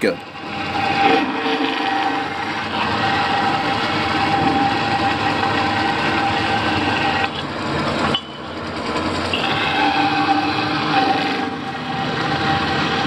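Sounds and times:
bandsaw cutting: 0.2 - 8.2, 8.8 - 13.0.

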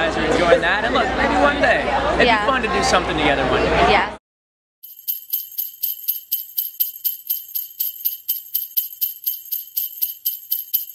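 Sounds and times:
sleigh bells shaken: 4.8 - 10.9.

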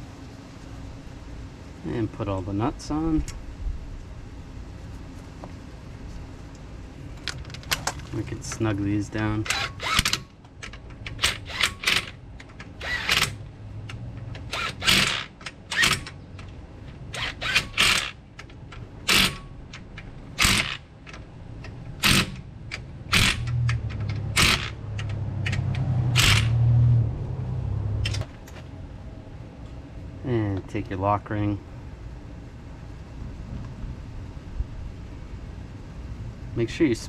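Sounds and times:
metallic clicks of wrench and nuts: 7.2 - 26.5.

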